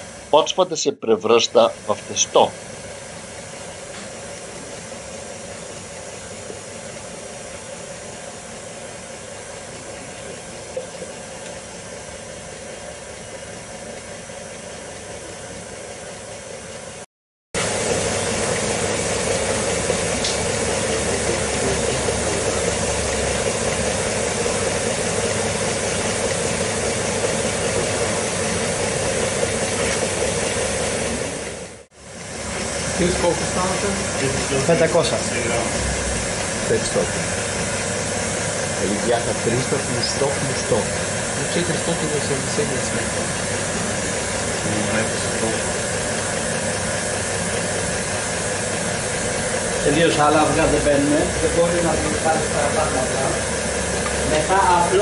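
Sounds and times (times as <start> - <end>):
electric mixer motor running: 17.6 - 55.0.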